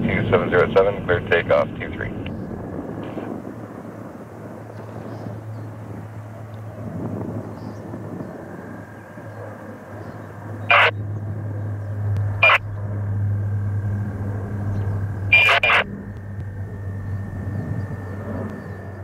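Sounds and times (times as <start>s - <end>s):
propeller drone: 0.0s - 19.0s
faint high whine: 7.6s - 19.0s
short sharp bursts: 15.3s - 15.8s.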